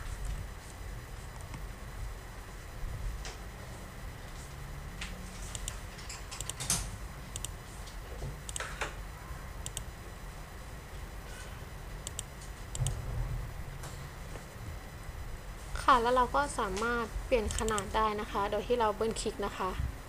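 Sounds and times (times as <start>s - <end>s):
low background hum: 0.0s - 20.0s
keyboard typing clicks: 5.5s - 7.6s, 8.5s - 8.8s, 9.6s - 9.9s, 12.0s - 13.0s, 17.5s - 17.9s.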